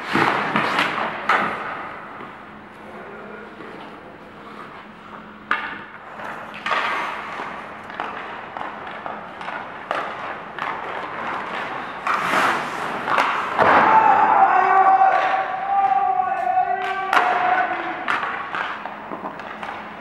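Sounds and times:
skates scraping on ice: 0.0 - 2.0, 6.0 - 14.0.

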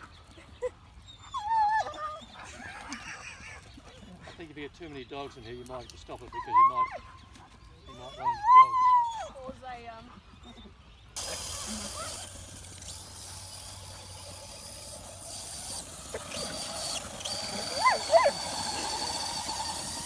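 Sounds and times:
dog yelping: 1.1 - 3.0, 7.9 - 9.4, 11.2 - 12.3, 15.7 - 20.0.

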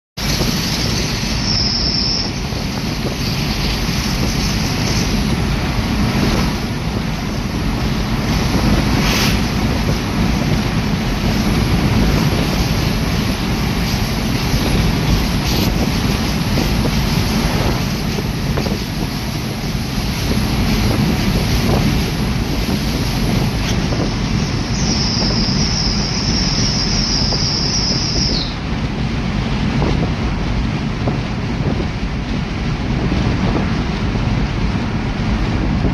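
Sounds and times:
thin high whine: 0.2 - 5.2, 23.6 - 28.6
low engine rumble: 0.2 - 35.9
road and wind noise: 0.2 - 35.9.

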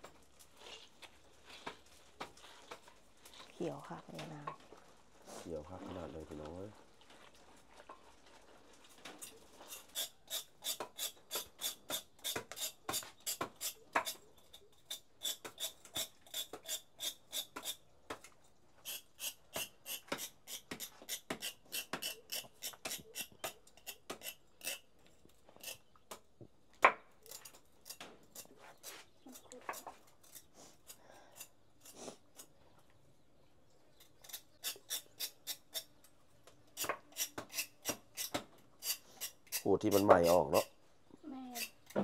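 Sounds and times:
knife scraping charred hide: 8.9 - 17.9, 18.8 - 26.2, 27.1 - 32.6, 34.0 - 36.0, 36.7 - 40.8, 41.4 - 42.0.

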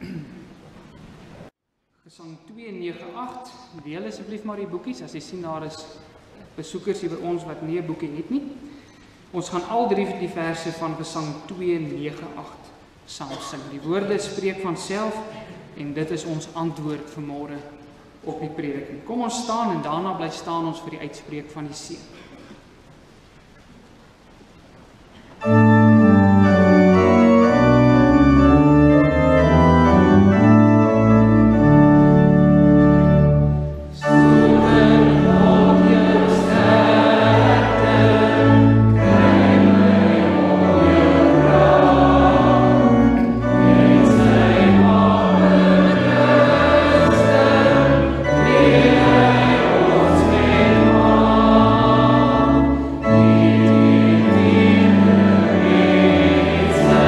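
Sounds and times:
church organ chords: 25.4 - 57.0
congregation singing a hymn: 25.4 - 57.0.

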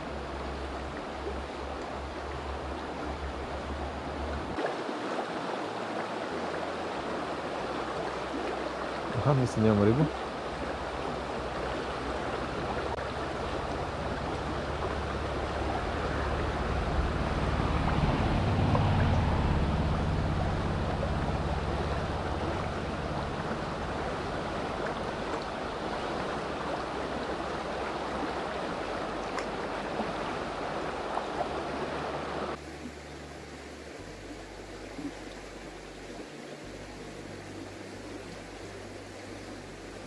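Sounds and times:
river water rushing: 0.0 - 40.0
low rumble: 12.4 - 31.7.

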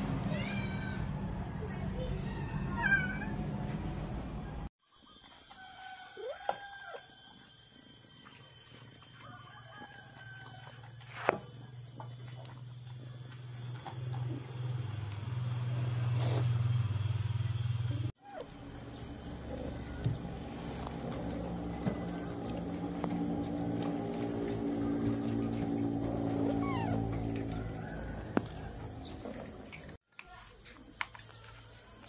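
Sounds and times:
cats meowing: 2.1 - 3.4, 26.4 - 27.2.

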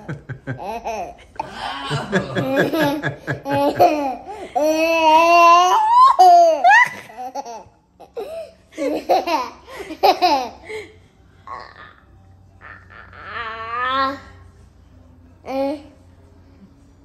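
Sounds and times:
woman laughing: 0.0 - 4.2.

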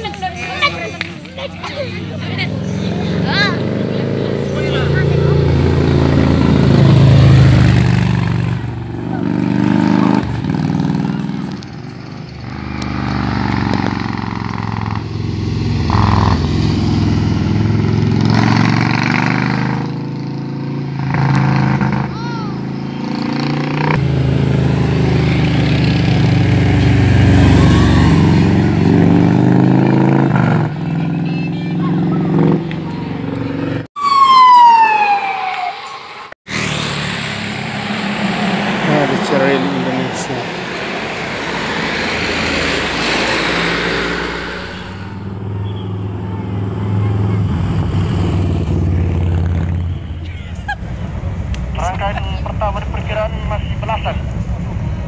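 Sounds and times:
motorcycles riding past: 0.0 - 35.9, 36.5 - 55.0
cars passing: 0.0 - 55.0
siren sweeping down: 27.0 - 28.8, 34.0 - 40.2.

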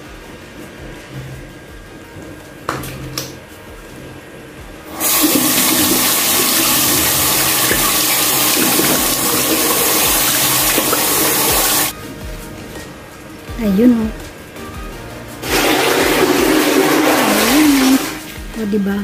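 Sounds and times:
tap water running: 4.8 - 12.0, 15.4 - 18.6.

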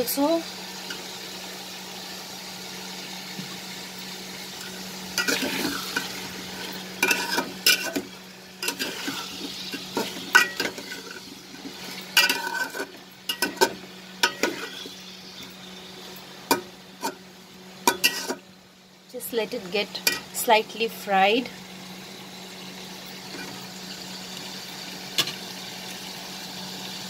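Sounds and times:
faint steady hum: 0.0 - 27.0
food sizzling in a pot: 0.0 - 27.0
metal spatula scraping a pot: 5.2 - 15.0, 16.5 - 17.2, 17.9 - 18.4.

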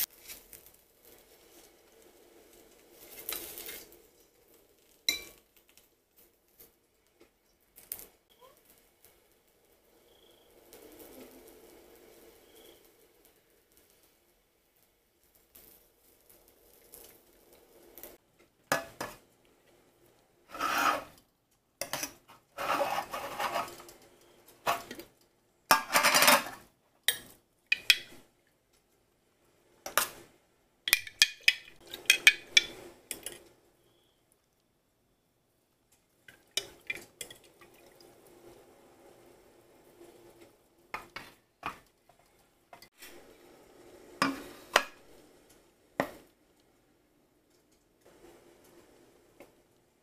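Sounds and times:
spoon scraping: 20.5 - 21.2, 21.8 - 25.1.

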